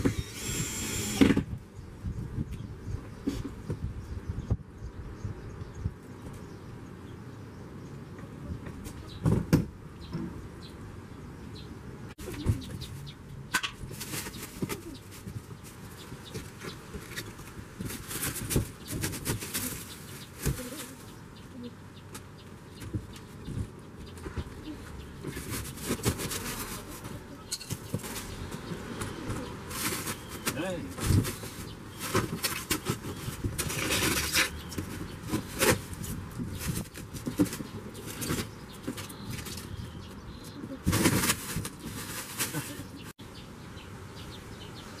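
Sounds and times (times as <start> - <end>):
plastic roofing sheets crackling: 13.6 - 21.1, 40.7 - 43.1.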